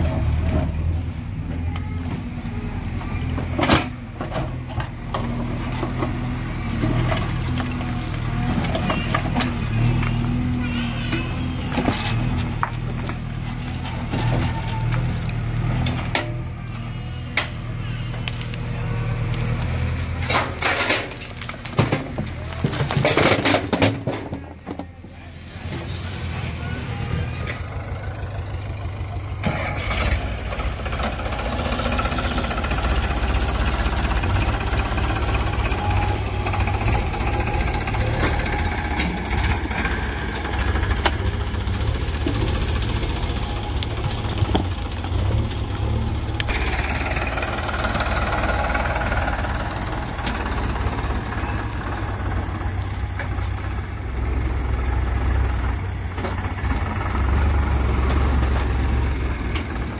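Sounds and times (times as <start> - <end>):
diesel engines running: 0.0 - 59.9
knocks and clatter from digging: 20.1 - 24.9.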